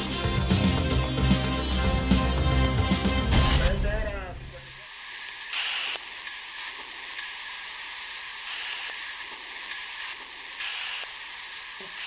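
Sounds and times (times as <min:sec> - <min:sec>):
radio static hiss: 0:03.5 - 0:12.0
faint clicks: 0:08.5 - 0:11.1.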